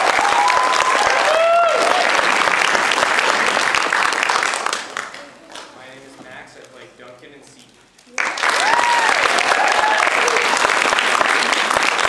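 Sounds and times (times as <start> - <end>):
audience applauding: 0.0 - 5.7, 8.1 - 12.0.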